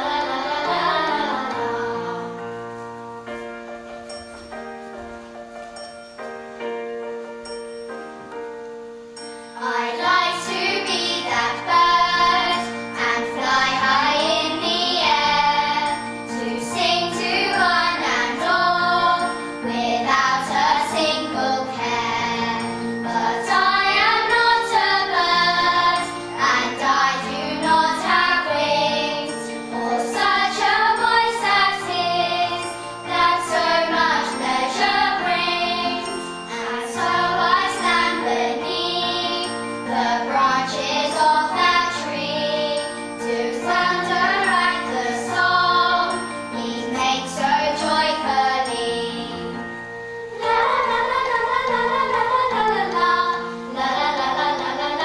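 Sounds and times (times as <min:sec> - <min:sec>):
children singing in unison: 0:00.0 - 0:03.1, 0:09.5 - 0:55.0
instrumental accompaniment: 0:00.0 - 0:55.0.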